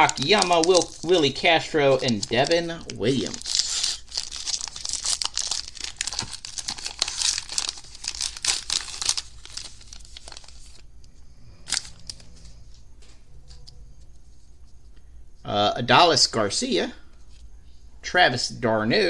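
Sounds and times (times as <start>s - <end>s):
wrapper being torn and crinkled: 0.0s - 10.9s, 11.6s - 12.4s.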